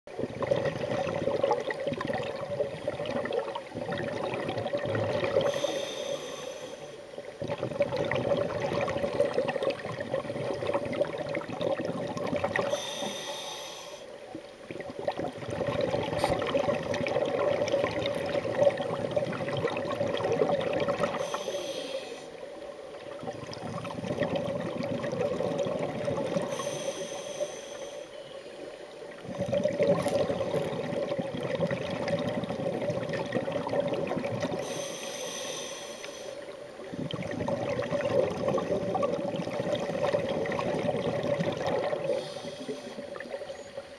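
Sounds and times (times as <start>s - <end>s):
bubbling regulator exhalations: 0.2s - 6.3s, 7.3s - 13.0s, 14.7s - 21.6s, 23.2s - 26.9s, 29.1s - 34.9s, 36.8s - 43.7s.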